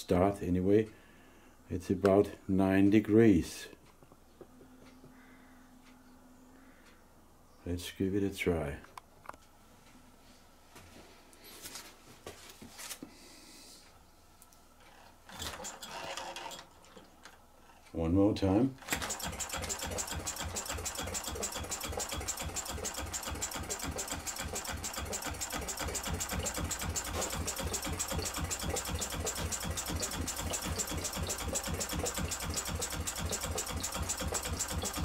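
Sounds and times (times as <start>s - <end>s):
small diesel engine clattering: 15.3s - 16.6s, 18.8s - 35.0s.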